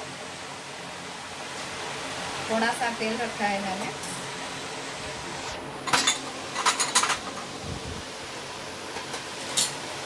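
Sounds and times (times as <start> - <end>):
steel bowls and utensils clinking: 5.9 - 7.4, 9.0 - 9.8.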